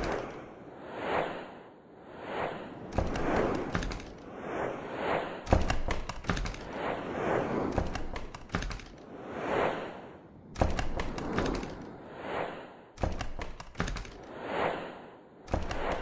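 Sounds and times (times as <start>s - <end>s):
whooshing swells: 0.0s - 13.0s
sharp clicks: 2.9s - 4.2s, 5.5s - 6.8s, 7.7s - 9.0s, 10.5s - 11.9s, 13.0s - 14.3s.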